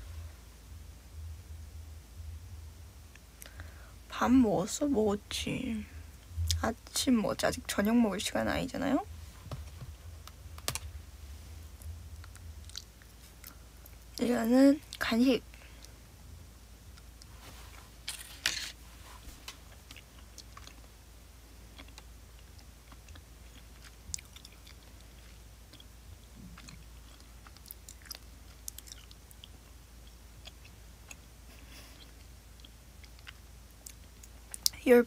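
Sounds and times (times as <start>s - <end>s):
person chewing a snack: 12.2s - 14.2s, 19.7s - 20.9s, 21.6s - 34.7s.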